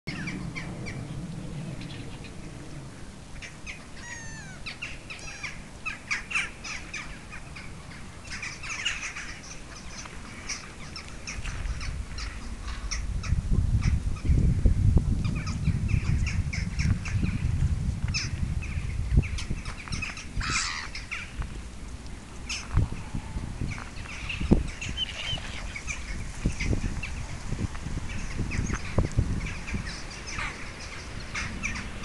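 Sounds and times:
low rumble: 0.1 - 4.8, 11.5 - 20.5
gulls calling: 0.1 - 14.4, 18.1 - 21.5, 22.4 - 27.4, 28.1 - 32.0.

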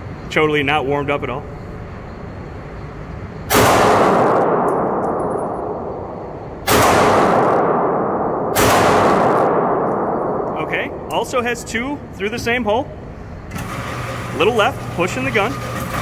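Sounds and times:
pistol shots indoors: 3.5 - 11.2.

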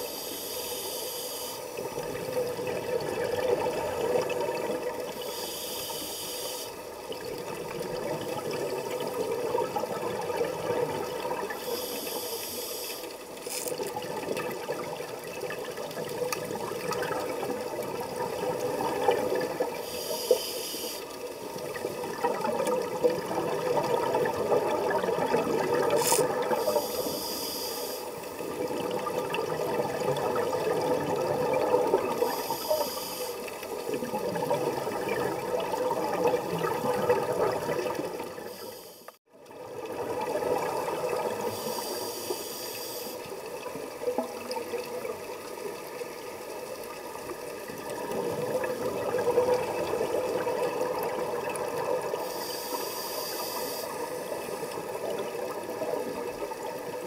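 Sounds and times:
regulator inhalation hiss: 0.0 - 1.8, 5.2 - 6.8, 11.6 - 13.8, 19.8 - 21.3, 26.0 - 28.4, 32.2 - 33.6, 38.4 - 39.2, 41.5 - 43.3, 52.2 - 54.8
gurgling exhaled bubbles: 1.8 - 5.2, 7.1 - 11.6, 13.3 - 19.8, 21.5 - 26.8, 28.4 - 32.8, 33.4 - 38.5, 39.4 - 41.8, 47.0 - 52.3.

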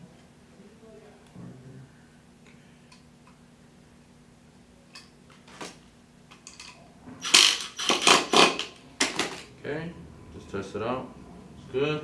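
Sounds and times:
impact driver hammering: 7.2 - 9.2.

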